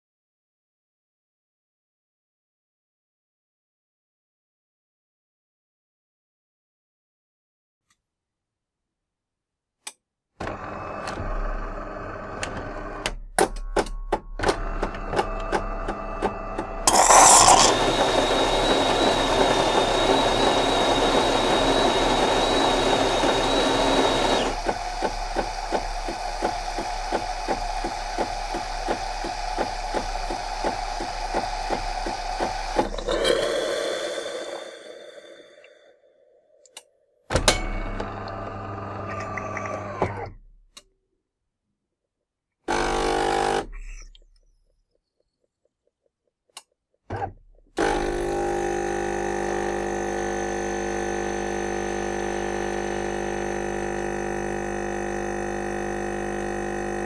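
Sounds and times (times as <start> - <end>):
coffee machine motor and pump: 10.4 - 13.0, 14.6 - 35.8, 37.7 - 40.2, 42.7 - 43.6, 47.8 - 57.0
high whistling tone frothing milk: 16.9 - 36.6.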